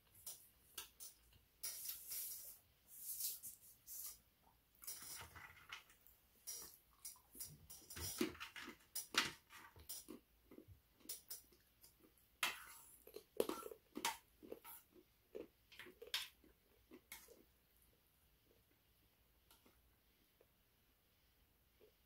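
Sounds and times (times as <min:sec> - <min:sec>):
spoons scraping metal tray: 0:04.8 - 0:05.8, 0:12.4 - 0:14.9
chewing: 0:09.8 - 0:17.5.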